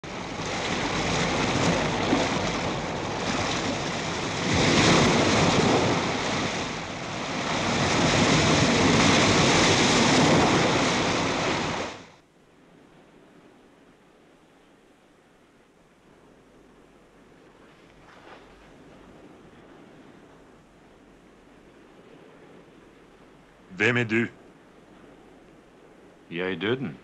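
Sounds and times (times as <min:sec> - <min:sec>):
surf breaking on rocky shore: 0:00.0 - 0:12.2.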